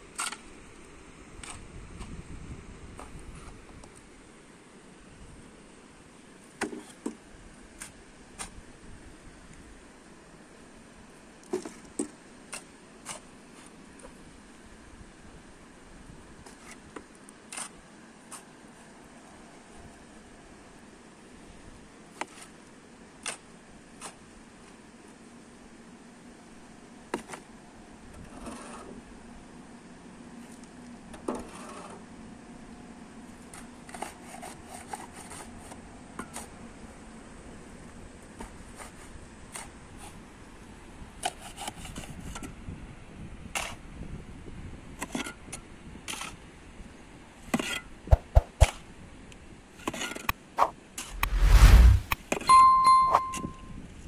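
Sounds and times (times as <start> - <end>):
shovel digging stony dirt: 48.1 - 48.8, 50.6 - 52.2.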